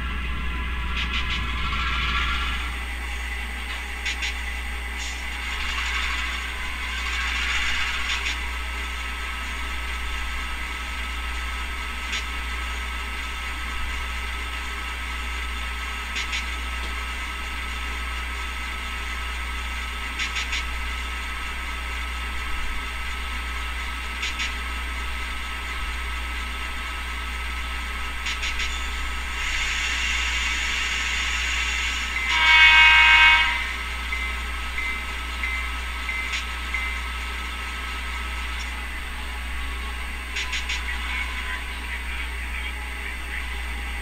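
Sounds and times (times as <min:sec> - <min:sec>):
diesel locomotive idling: 0:00.0 - 0:44.0
air hiss: 0:28.4 - 0:32.4.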